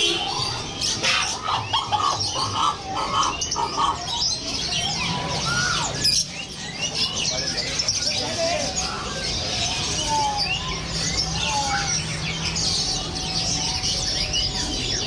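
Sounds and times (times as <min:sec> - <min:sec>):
songbirds chirping and singing: 0:00.0 - 0:15.0.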